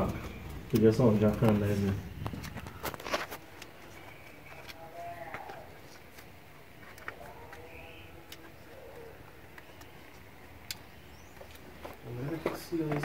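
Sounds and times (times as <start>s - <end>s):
faint bird calls: 6.8s - 12.7s.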